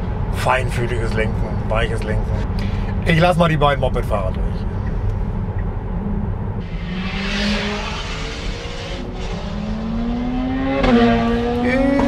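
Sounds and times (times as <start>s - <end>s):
road and tyre noise: 0.0s - 12.0s
low drone rising in pitch: 4.6s - 12.0s.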